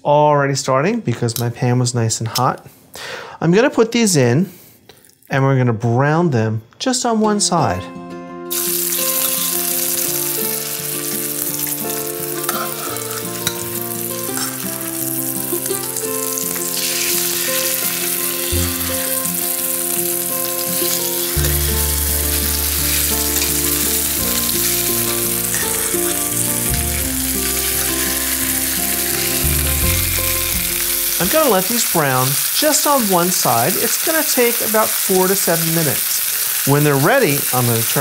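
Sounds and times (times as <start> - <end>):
chicken sizzling in a skillet: 8.5 - 38.0.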